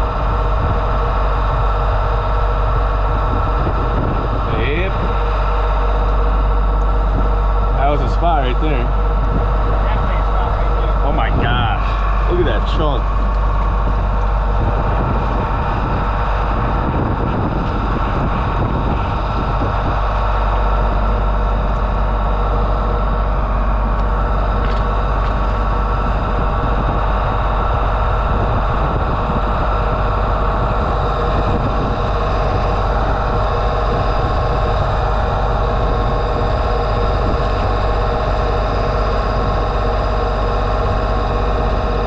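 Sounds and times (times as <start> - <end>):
engine and high-pressure pump running: 0.0 - 42.0.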